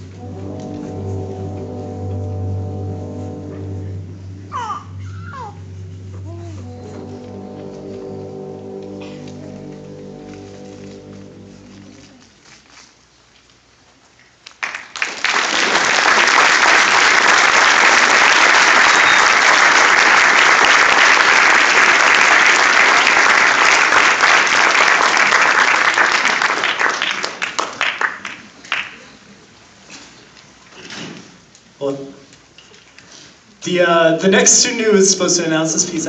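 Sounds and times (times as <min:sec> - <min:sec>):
audience applauding: 0:14.5 - 0:29.2.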